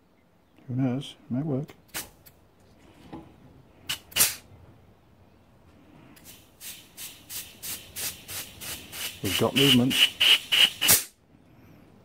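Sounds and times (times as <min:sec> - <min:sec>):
compressed air hissing blasts: 0:03.8 - 0:04.5, 0:06.2 - 0:11.2.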